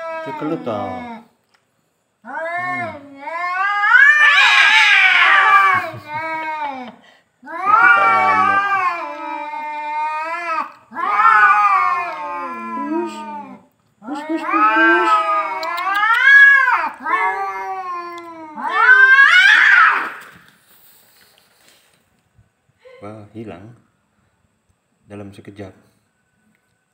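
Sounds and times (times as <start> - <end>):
cats caterwauling: 0.0 - 1.3, 2.2 - 20.4.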